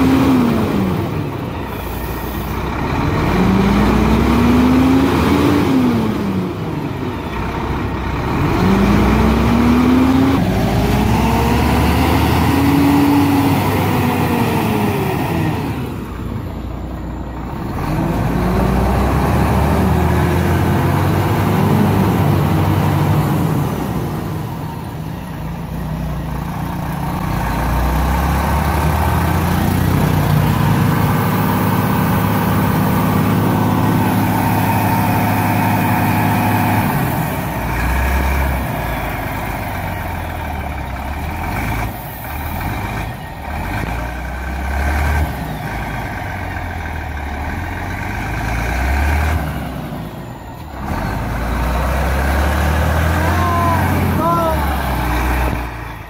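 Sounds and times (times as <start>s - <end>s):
truck diesel engine under load: 0.0s - 56.0s.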